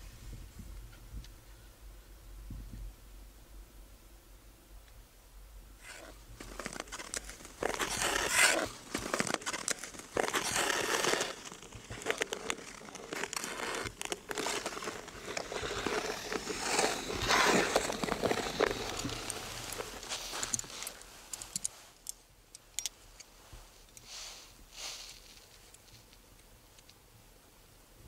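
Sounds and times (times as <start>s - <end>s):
ice skates scraping ice: 5.8s - 21.6s.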